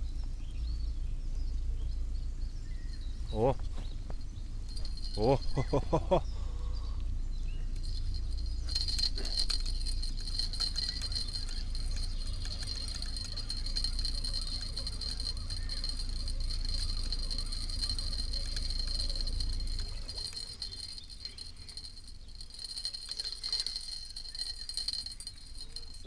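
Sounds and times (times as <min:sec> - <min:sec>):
light scattered ticks: 0:07.8 - 0:26.0.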